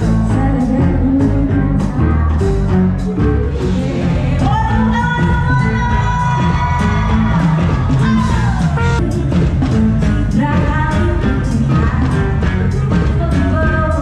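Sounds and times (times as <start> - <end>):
live band music: 0.0 - 14.0
trumpet playing: 8.1 - 9.2.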